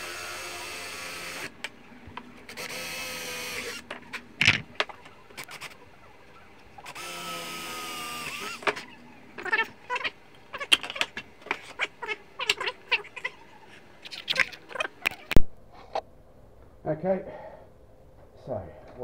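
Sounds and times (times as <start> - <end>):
cordless drill drilling wood: 0.0 - 1.6, 2.5 - 3.9, 6.8 - 8.8.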